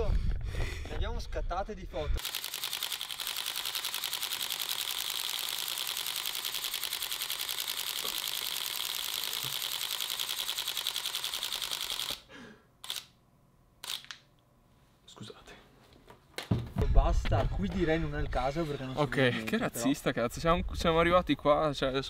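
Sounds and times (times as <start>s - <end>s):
camera shutter burst: 2.2s - 13.2s, 13.8s - 14.2s.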